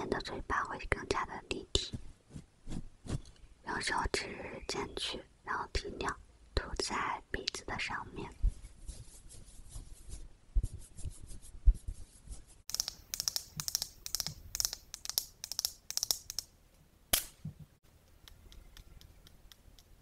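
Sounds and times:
faint light ticks: 18.0 - 20.0.

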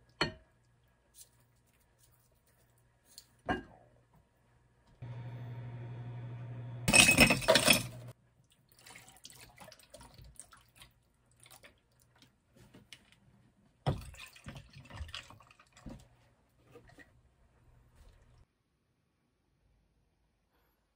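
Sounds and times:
ice cubes clattering into glass: 6.9 - 8.0.

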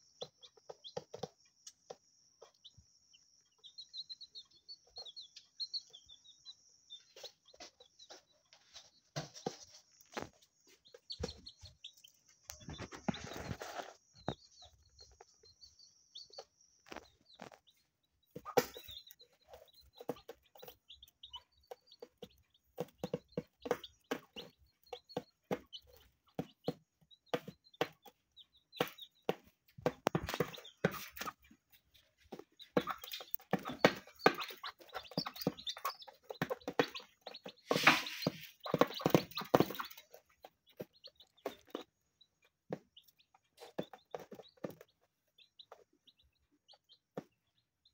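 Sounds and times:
chicks peeping: 0.0 - 47.9
hen clucking: 28.8 - 41.8.

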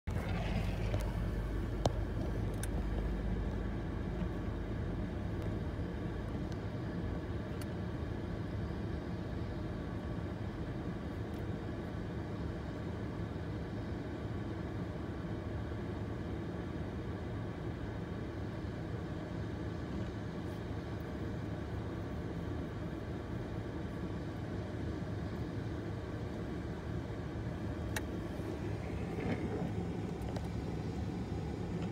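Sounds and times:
locomotive low drone: 0.0 - 10.0, 26.2 - 31.9.

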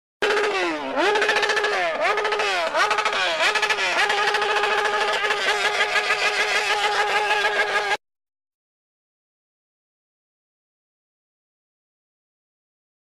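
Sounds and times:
motorcycle engine revving: 0.2 - 8.0.

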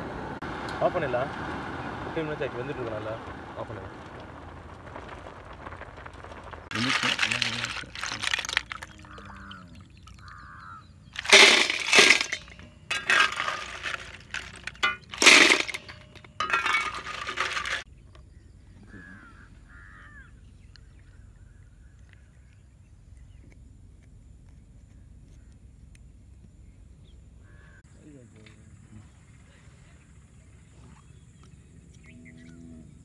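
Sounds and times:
snail shells clattering on steel: 6.7 - 9.5, 11.2 - 17.8.

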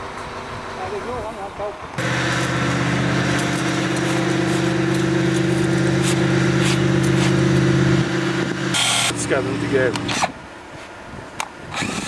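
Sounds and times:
engine running steadily: 0.0 - 10.4
rotten wood crunching scrapes: 2.0 - 8.1.

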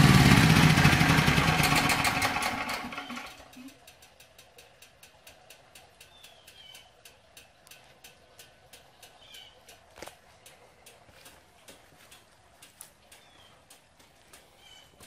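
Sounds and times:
faint ticking: 2.7 - 15.0
faint bird chirps: 6.0 - 7.0, 8.9 - 9.7, 14.5 - 15.0.

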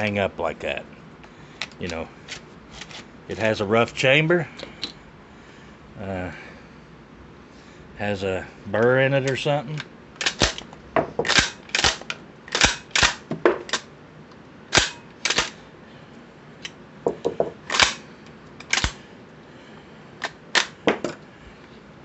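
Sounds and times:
shotgun slide clacking: 14.7 - 15.6
shells dropping on a bench: 20.2 - 21.2.

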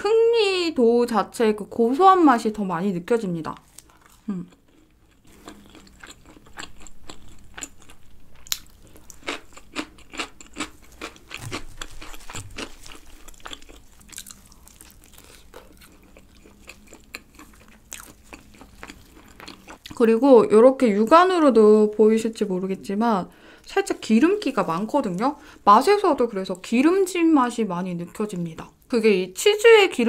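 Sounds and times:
chewing crunchy pizza crust: 3.6 - 20.0.

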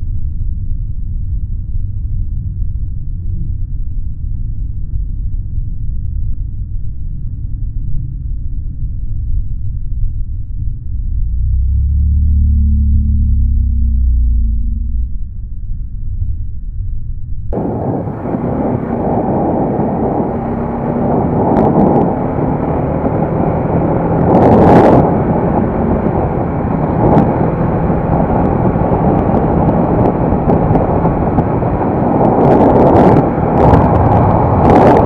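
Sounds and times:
wind rush on microphone: 17.5 - 35.0
motorcycle running: 17.6 - 35.0.

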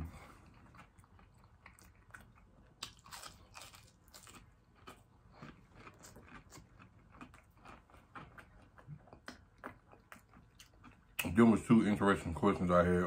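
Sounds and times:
chewing crispy fried shrimp: 0.0 - 11.7.

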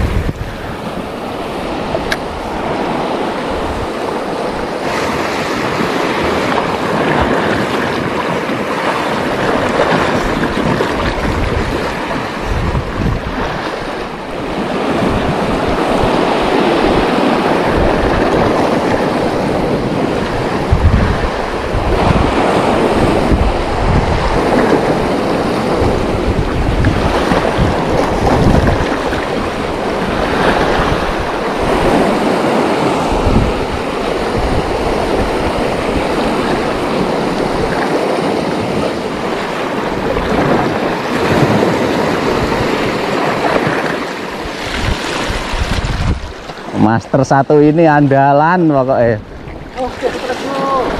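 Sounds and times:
sea surf breaking over rocks: 0.0 - 50.9
wind buffeting microphone: 0.0 - 50.9.

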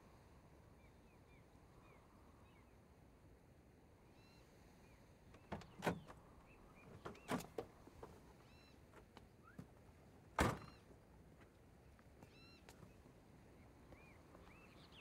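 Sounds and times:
faint bird calls: 4.1 - 7.4, 8.4 - 9.6, 12.2 - 15.0.

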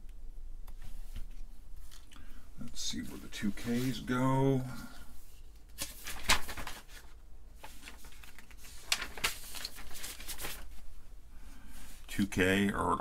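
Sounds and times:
paper sheets rustling: 2.8 - 10.9.

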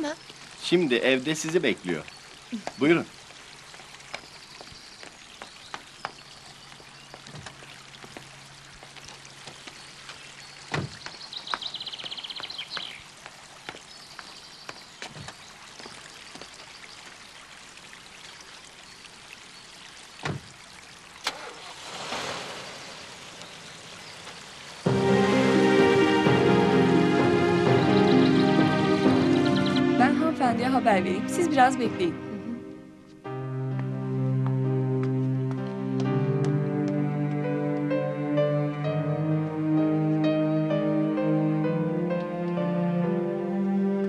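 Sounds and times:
fountain splashing: 0.0 - 32.2
footsteps: 4.1 - 16.6, 33.0 - 38.0
car doors thumping shut: 10.7 - 11.0.

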